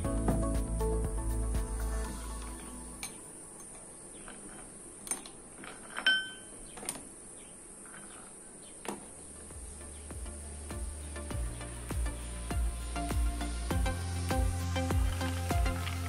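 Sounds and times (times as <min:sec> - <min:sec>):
glassy ring: 0:06.0 - 0:06.5.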